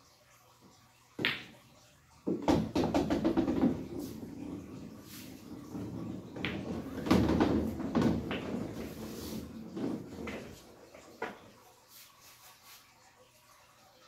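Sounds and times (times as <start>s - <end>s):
billiard balls clacking: 1.2s - 1.6s, 2.2s - 11.5s
pool cue striking ball: 1.2s - 1.6s, 2.2s - 11.4s
billiard balls rolling: 1.2s - 12.0s.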